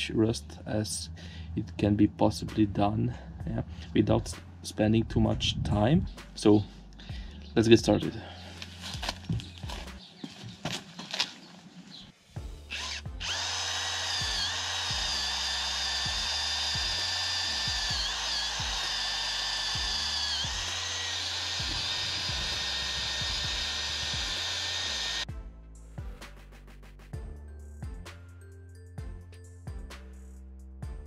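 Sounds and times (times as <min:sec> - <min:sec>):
wire brush drill scrubbing metal: 0:12.6 - 0:25.3.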